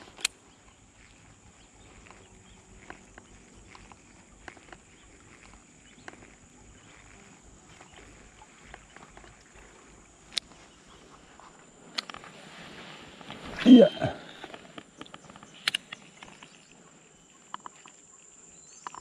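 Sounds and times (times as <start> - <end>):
faint ticks: 0.0 - 12.3, 14.4 - 19.0
sharp click: 15.1 - 16.0.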